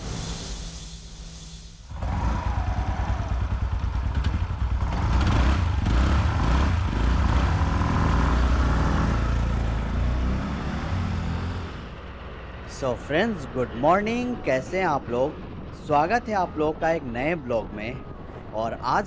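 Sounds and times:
scooter engine rumbling: 1.9 - 9.9.

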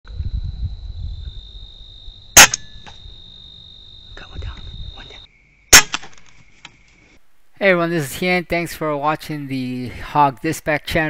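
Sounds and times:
air rifle shot: 2.4 - 3.0, 5.7 - 6.2.

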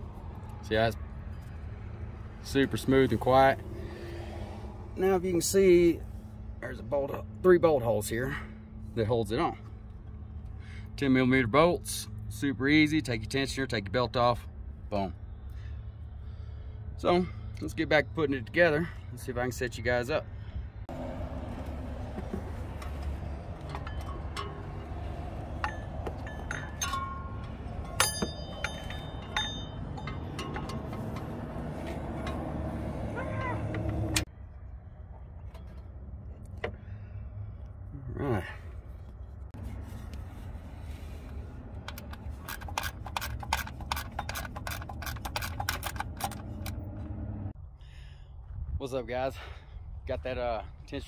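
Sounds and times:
metal tools clinking: 22.0 - 32.8, 41.8 - 46.9
pulley clicking: 41.8 - 46.8.

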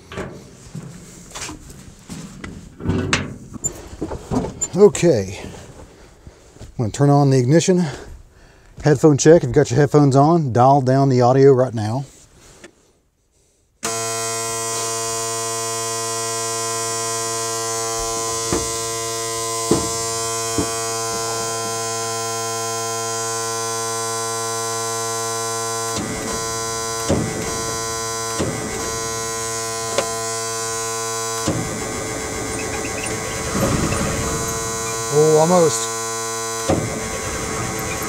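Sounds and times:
rough noise from cab controls: 0.0 - 6.0, 13.8 - 38.0
steady electric warning buzzer: 13.8 - 38.0
short clicks from cab controls: 25.8 - 30.4.

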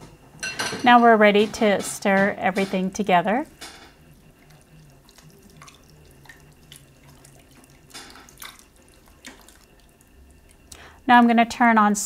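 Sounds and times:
spatula stirring thick stew: 3.9 - 10.7.

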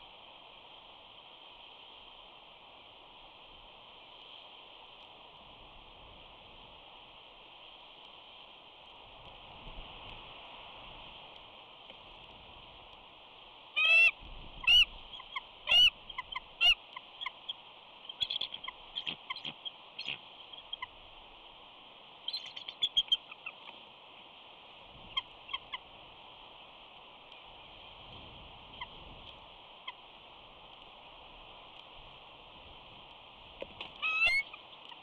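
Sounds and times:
eagle chittering notes: 13.8 - 21.0, 22.3 - 23.6, 34.0 - 34.6
eagles calling: 13.8 - 21.0, 22.3 - 23.7, 34.0 - 35.0.

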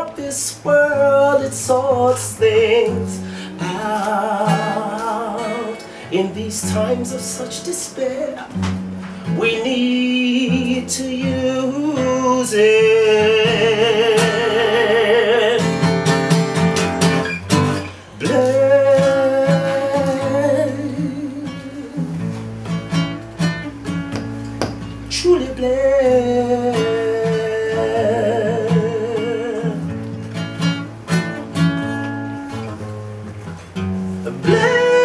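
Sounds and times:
strummed acoustic guitar: 0.0 - 35.0
man singing held notes: 25.0 - 29.9.

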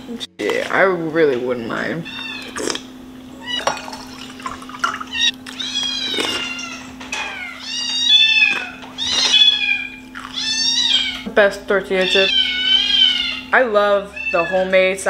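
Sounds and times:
steady low hum: 0.0 - 15.0
kitten meowing: 5.1 - 11.3, 11.9 - 14.9.

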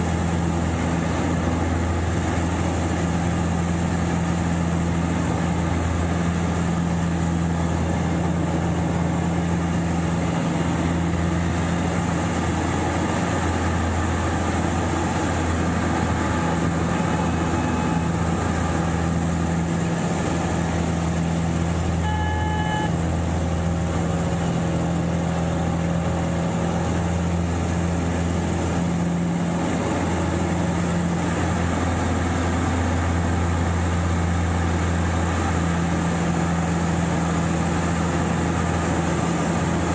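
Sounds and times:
propeller plane engine droning: 0.0 - 39.9
brief beep: 22.0 - 23.0.

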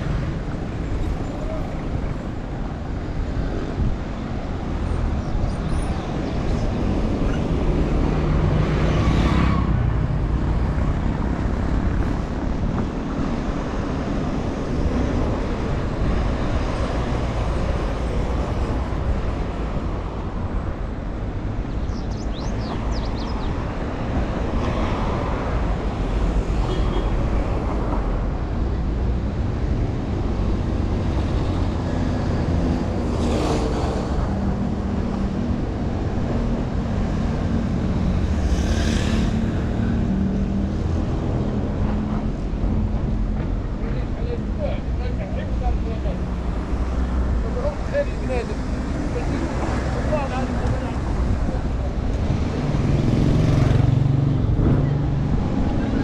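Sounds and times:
road traffic rumble: 0.0 - 56.0
vehicles passing by: 0.0 - 56.0.

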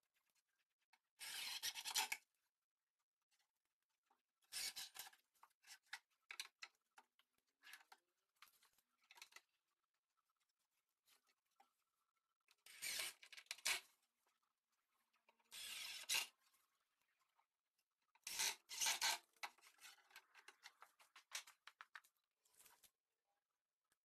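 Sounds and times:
small knocks and clicks: 19.4 - 22.2.

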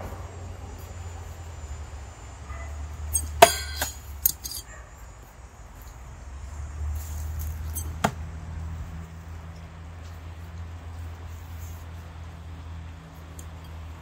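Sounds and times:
throwing knives clinking: 3.1 - 4.6.

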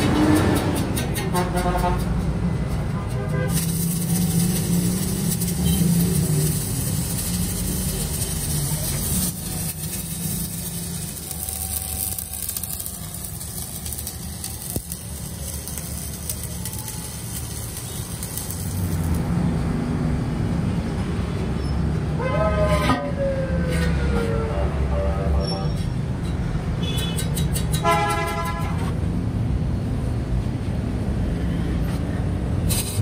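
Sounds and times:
vehicle horn: 1.3 - 2.1, 27.8 - 28.9
electric arc welding crackle: 3.2 - 19.4, 32.6 - 33.0.

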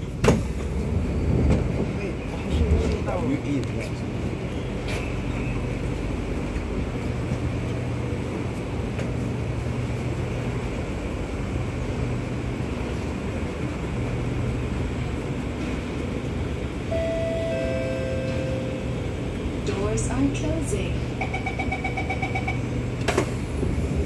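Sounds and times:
train equipment low hum: 0.0 - 24.0
two-note falling door chime: 17.0 - 18.8.

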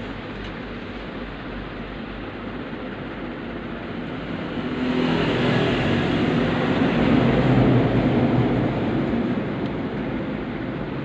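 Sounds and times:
passing vehicle engine: 3.9 - 10.2.

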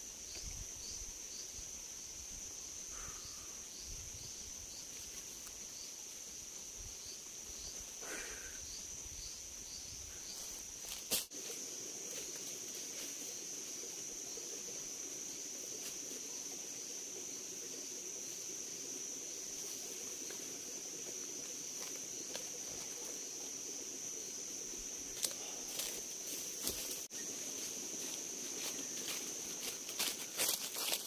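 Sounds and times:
insects droning: 0.0 - 31.0
footsteps on dry leaves: 25.8 - 31.0.

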